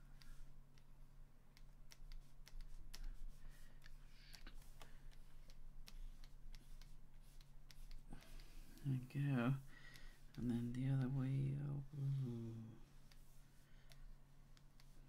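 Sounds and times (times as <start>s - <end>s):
steady low hum: 0.0s - 15.0s
stylus tapping on tablet screen: 1.5s - 8.8s.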